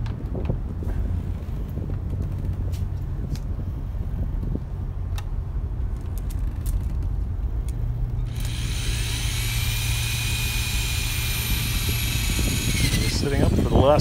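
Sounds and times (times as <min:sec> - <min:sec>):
cordless drill whining: 0:08.2 - 0:14.0.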